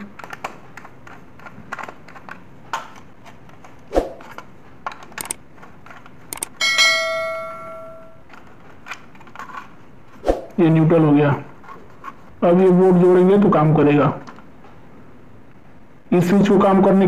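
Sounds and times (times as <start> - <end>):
sharp clicks: 5.2 - 5.4, 6.3 - 6.6
bell ding: 6.6 - 8.2.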